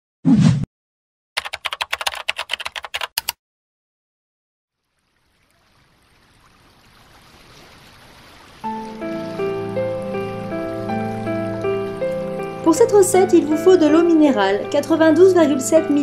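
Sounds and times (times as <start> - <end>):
sharp typing-like clicks: 1.4 - 3.4.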